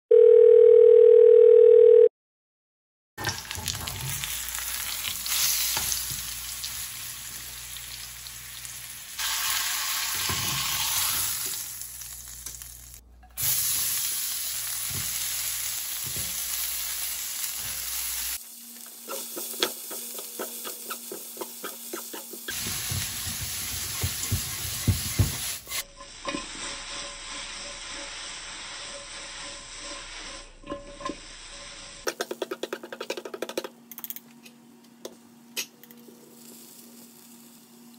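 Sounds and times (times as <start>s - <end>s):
steak sizzling in a frying pan: 3.2s - 32.1s
vegetables stir-frying: 3.2s - 33.0s
spatula and tongs scraping a pan: 19.0s - 32.1s.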